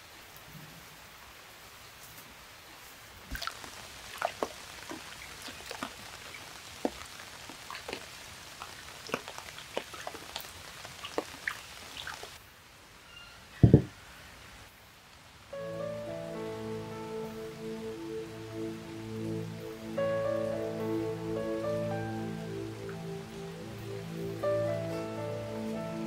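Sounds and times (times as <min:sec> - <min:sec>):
small splashes and drips: 0:03.3 - 0:12.4.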